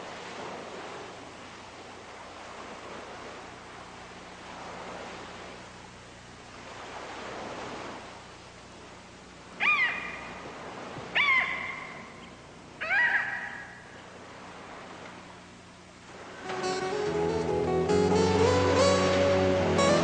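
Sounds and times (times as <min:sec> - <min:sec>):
sea waves washing: 0:00.0 - 0:12.2, 0:13.6 - 0:20.0
seagull cries: 0:09.6 - 0:10.4, 0:11.1 - 0:12.2, 0:12.8 - 0:13.9.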